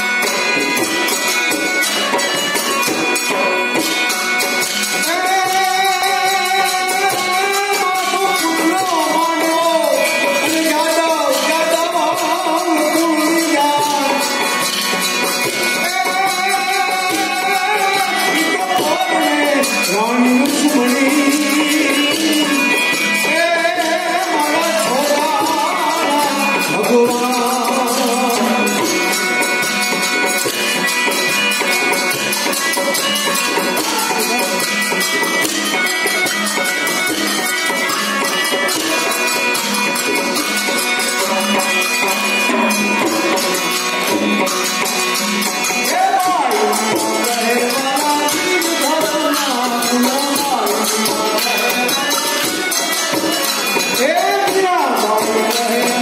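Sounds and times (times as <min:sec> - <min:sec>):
rapid jingling percussion: 0:00.0 - 0:56.0
person singing: 0:05.0 - 0:14.5, 0:15.8 - 0:29.3, 0:45.8 - 0:56.0.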